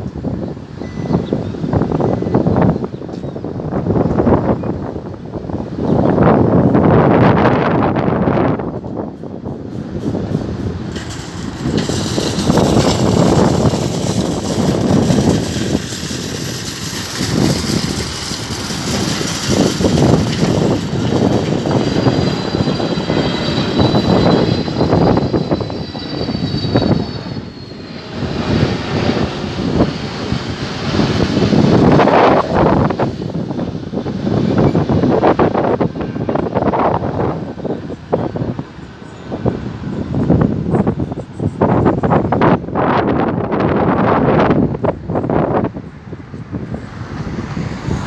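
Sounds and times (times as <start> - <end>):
jet engine rumble: 0.0 - 48.0
high whine sliding down: 6.8 - 38.7.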